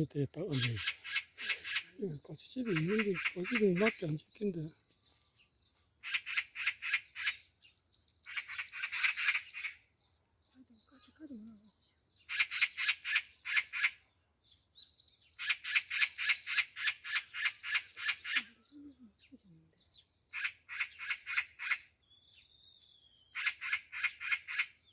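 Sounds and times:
magpie chattering rattle: 0.5s - 2.0s, 2.6s - 4.1s, 6.0s - 7.5s, 8.2s - 9.8s, 12.3s - 14.0s, 15.4s - 18.6s, 20.3s - 21.9s, 23.3s - 24.9s.

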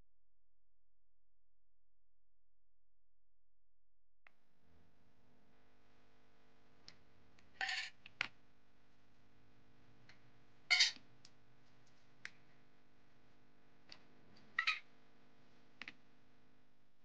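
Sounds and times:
faint steady hum: 3.5s - 17.0s.

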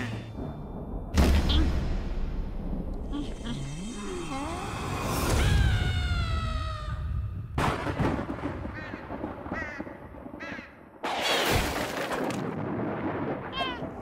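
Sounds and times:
cartoon crow cawing: 8.8s - 10.8s.

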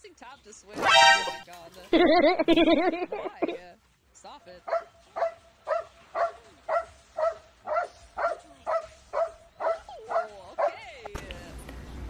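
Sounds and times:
dog barking: 4.7s - 10.8s.

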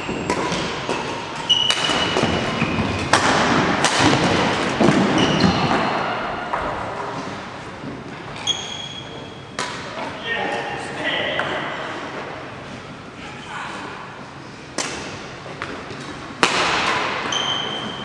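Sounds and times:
shoe squeaks: 1.4s - 2.9s, 5.1s - 5.9s, 8.4s - 9.5s, 17.3s - 18.0s
echoing thuds and knocks: 1.8s - 6.9s.

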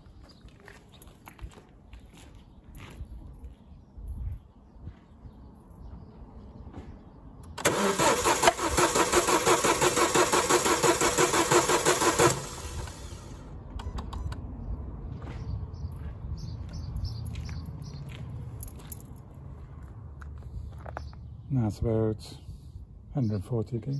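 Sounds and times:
car engine cranking on starter motor: 7.6s - 13.9s
sharp clicks: 13.6s - 14.5s.

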